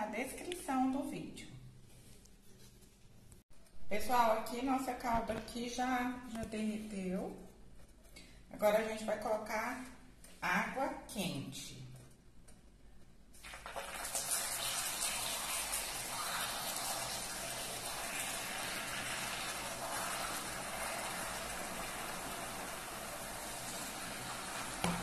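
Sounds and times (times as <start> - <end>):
caramel hissing and bubbling: 13.4 - 25.0.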